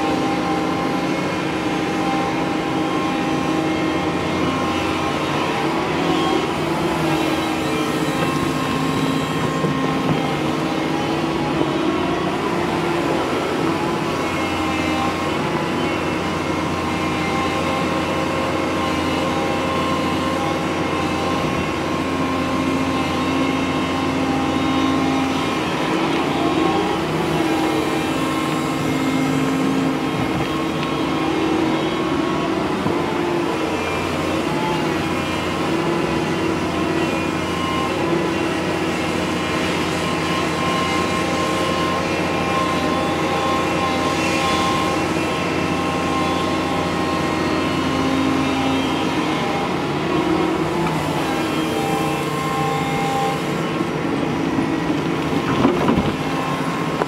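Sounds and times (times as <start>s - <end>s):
excavator diesel engine running: 0.0s - 57.0s
hydraulics humming: 0.0s - 57.0s.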